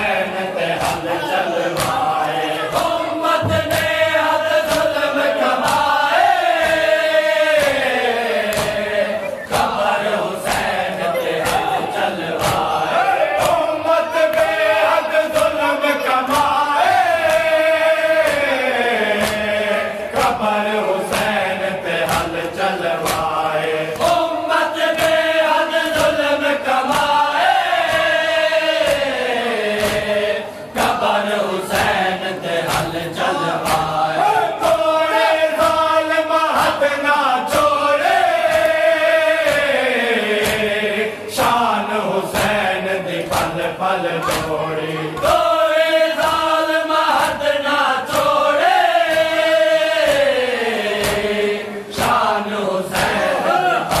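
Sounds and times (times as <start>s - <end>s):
men chanting a lament: 0.0s - 54.0s
chest-beating slaps: 0.8s - 5.9s, 7.5s - 15.6s, 18.2s - 19.5s, 22.0s - 24.3s, 28.8s - 30.2s, 32.6s - 34.8s, 43.2s - 45.6s, 50.9s - 52.3s, 52.9s - 53.2s.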